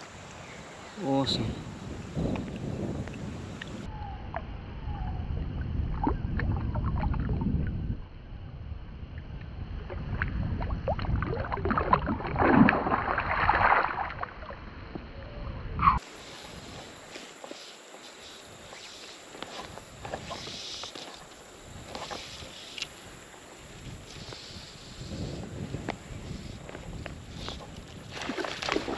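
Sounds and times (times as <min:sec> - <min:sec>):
river water sloshing: 0:10.6 - 0:14.6, 0:26.7 - 0:28.9.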